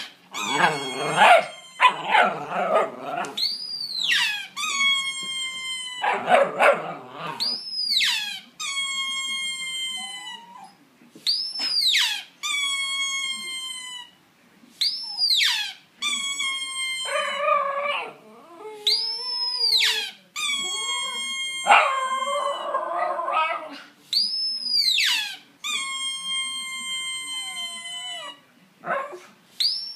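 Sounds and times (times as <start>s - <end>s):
squeaky toy squeaking: 0.0s - 2.3s, 3.3s - 10.7s, 11.3s - 14.2s, 14.9s - 17.4s, 18.9s - 22.5s, 24.3s - 28.4s
dog howling: 0.4s - 3.4s, 21.6s - 23.8s.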